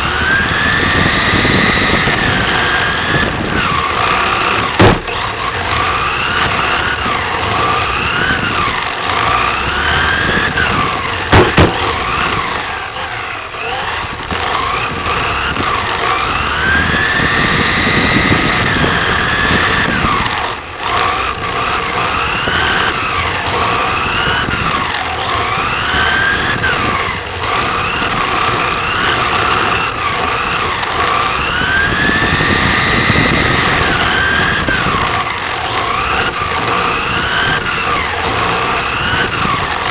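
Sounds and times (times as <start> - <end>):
electric motor whining: 0.0 - 39.9
sharp knocks: 4.8 - 5.2, 11.3 - 11.9.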